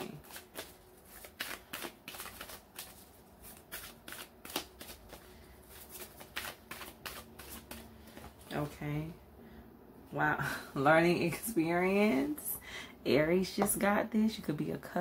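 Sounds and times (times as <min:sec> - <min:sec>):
cards being shuffled: 0:00.0 - 0:08.5.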